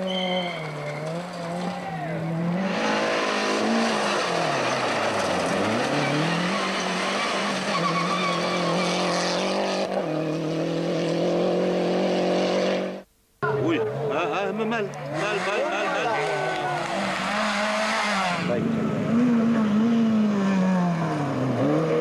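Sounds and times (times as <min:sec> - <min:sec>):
rally car engines revving: 0:00.0 - 0:22.0.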